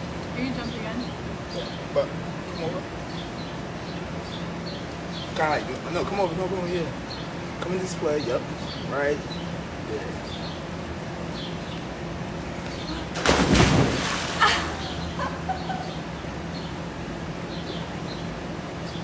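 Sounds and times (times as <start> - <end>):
small birds chirping: 0.3 - 19.0
big splash into pool: 13.1 - 14.8.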